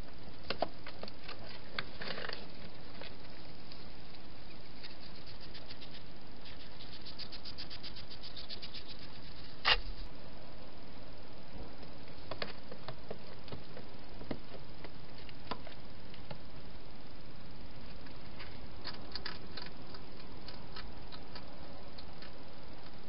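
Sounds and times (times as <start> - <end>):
steady hiss: 0.0 - 23.0
hedgehog eating crunches: 18.0 - 22.4.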